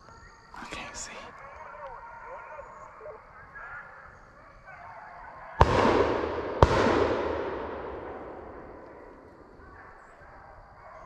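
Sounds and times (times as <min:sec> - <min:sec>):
gunshots with rolling echo: 0:05.5 - 0:10.5.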